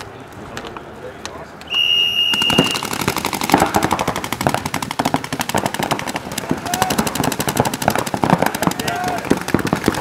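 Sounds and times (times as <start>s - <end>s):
paintball markers firing: 2.2s - 10.0s.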